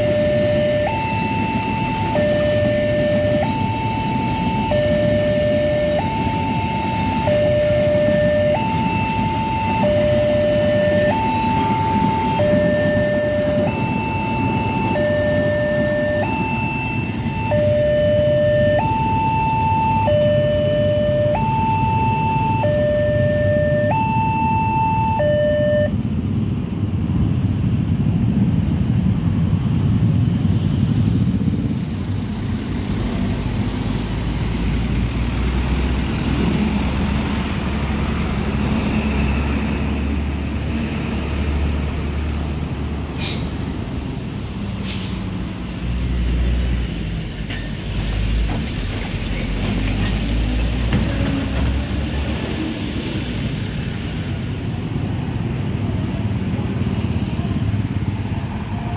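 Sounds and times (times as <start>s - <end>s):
two-tone crossing alarm: 0.0s - 26.0s
vehicle engines passing: 0.0s - 58.9s.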